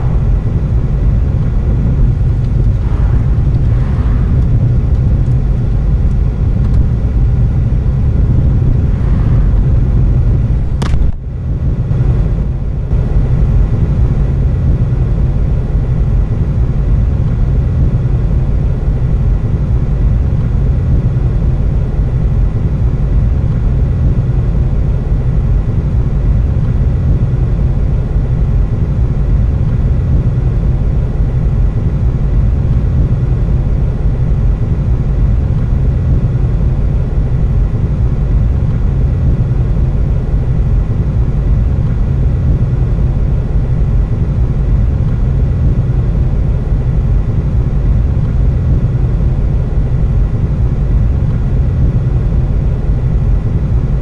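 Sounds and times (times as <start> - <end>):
car driving heard from inside: 0.0 - 12.4.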